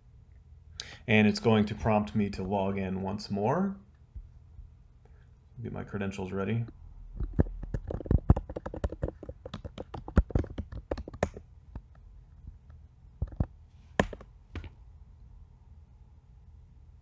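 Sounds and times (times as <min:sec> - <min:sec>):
typing on computer keyboard: 0:07.4 - 0:11.4.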